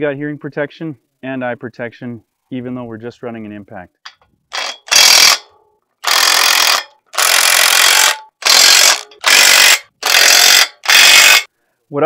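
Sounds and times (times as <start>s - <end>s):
impact wrench hammering: 4.1s - 11.5s.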